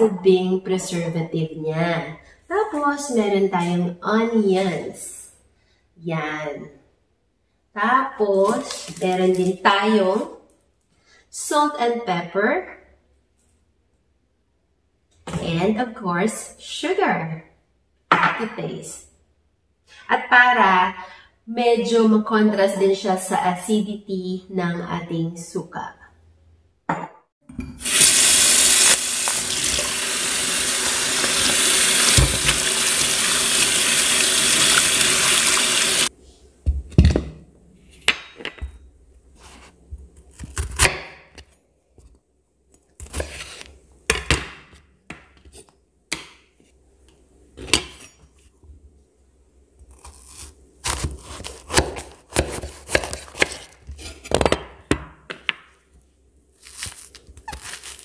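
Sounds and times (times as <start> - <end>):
tap water running into sink: 27.8 - 36.1.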